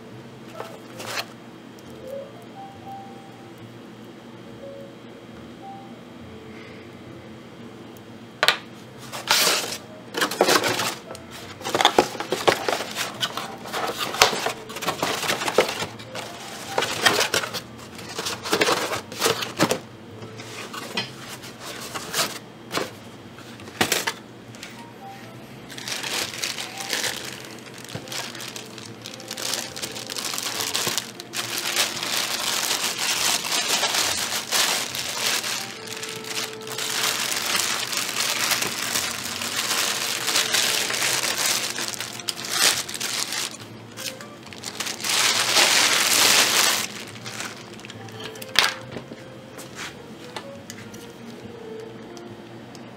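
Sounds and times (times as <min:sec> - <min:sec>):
plastic bag crinkling: 0:00.5 - 0:01.3, 0:09.1 - 0:19.8, 0:25.7 - 0:48.7
foam packing rustling and knocking: 0:09.2 - 0:17.6, 0:25.8 - 0:43.6.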